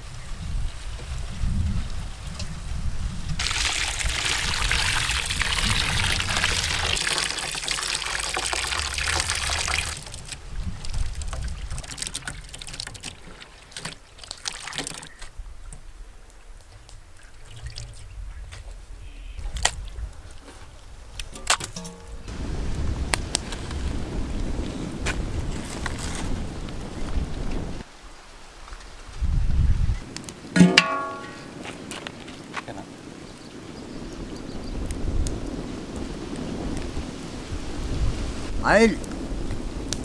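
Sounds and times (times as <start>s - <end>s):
water pouring into steel basin: 3.4s - 10.4s.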